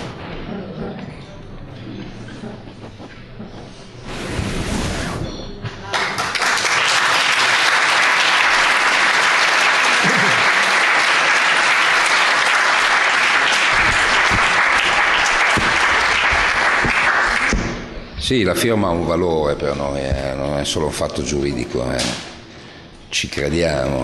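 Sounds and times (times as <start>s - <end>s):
audience applauding: 5.9s - 17.6s.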